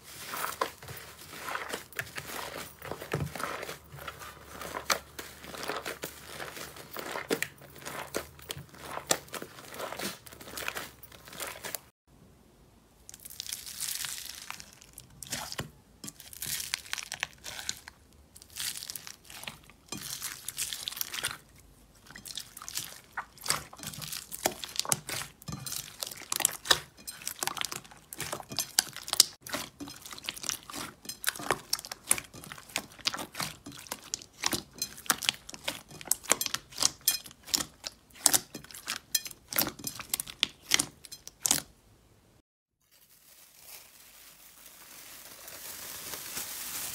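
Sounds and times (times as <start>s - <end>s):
foam beads rustling: 0.0s - 11.9s, 42.8s - 46.9s.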